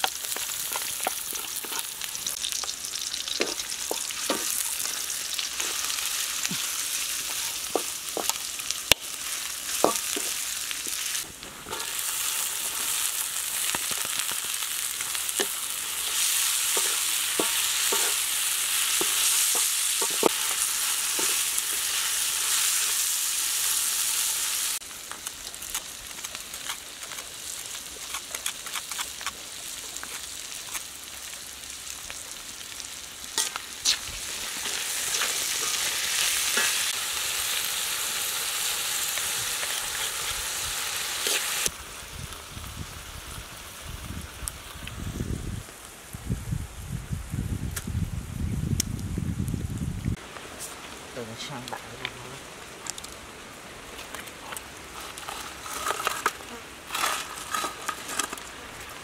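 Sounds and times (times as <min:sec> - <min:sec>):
food sizzling in hot oil: 0:00.0 - 0:45.6
utensil scraping against wok: 0:00.2 - 0:02.4, 0:03.4 - 0:08.4, 0:09.2 - 0:24.8, 0:33.4 - 0:37.9, 0:38.5 - 0:41.7, 0:54.4 - 0:58.6.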